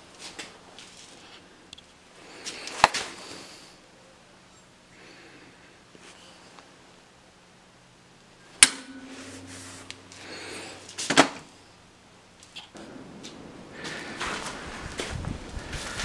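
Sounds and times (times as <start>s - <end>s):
steel ringing: 8.4s - 11.9s
hammer striking steel stamp: 8.6s - 10.8s
clatter of metal hits: 8.6s - 11.4s.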